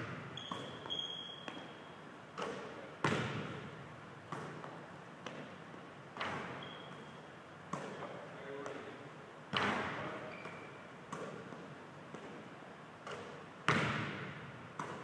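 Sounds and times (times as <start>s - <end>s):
basketball bouncing on wooden floor: 2.4s - 3.6s, 13.1s - 15.0s.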